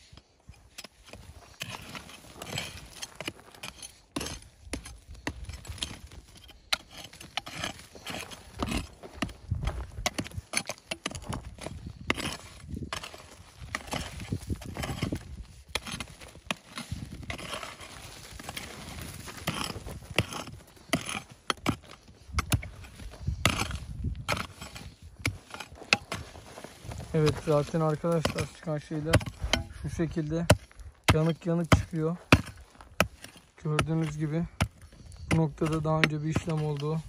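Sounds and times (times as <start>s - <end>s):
mattock chopping stony earth: 0.0s - 37.0s.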